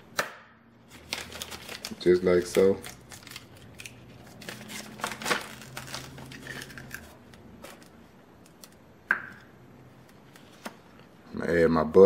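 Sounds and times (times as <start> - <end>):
plastic zipper bag crinkling: 0.9 - 8.0.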